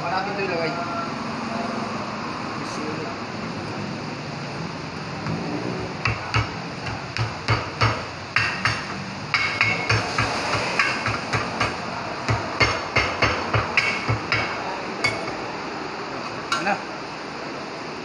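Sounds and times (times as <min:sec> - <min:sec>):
hammer striking metal: 0:06.0 - 0:15.4.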